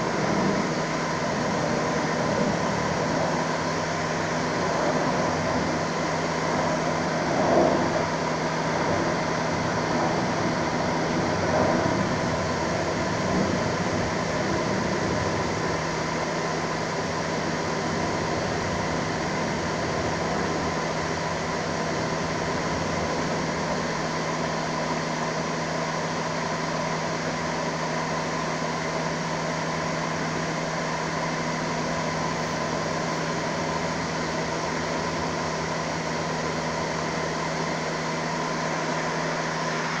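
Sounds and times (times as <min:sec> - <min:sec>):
mechanical hum: 0:00.0 - 0:40.0.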